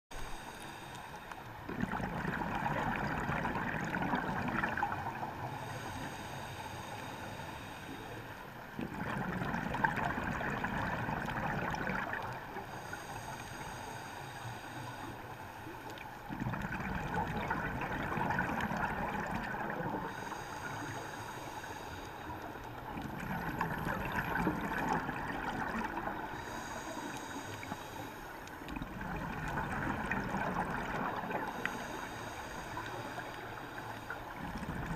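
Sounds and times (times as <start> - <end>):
regulator inhalation hiss: 0.2 - 1.4, 5.5 - 8.4, 12.6 - 15.8, 20.1 - 22.6, 26.3 - 28.5, 31.4 - 34.3
bubbling underwater exhalations: 1.7 - 5.2, 8.8 - 12.4, 16.3 - 20.2, 22.9 - 26.6, 28.7 - 31.6, 34.3 - 34.9.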